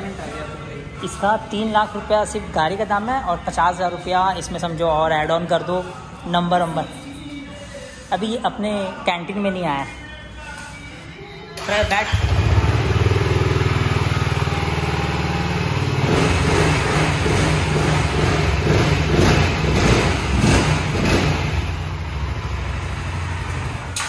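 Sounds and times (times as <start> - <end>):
motorcycle engine idling: 12.0 - 24.0.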